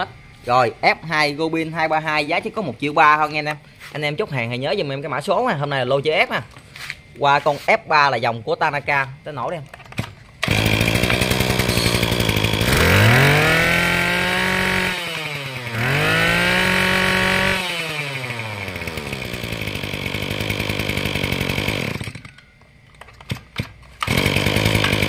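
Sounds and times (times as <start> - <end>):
brush cutter engine revving: 10.4 - 22.4, 23.2 - 25.0.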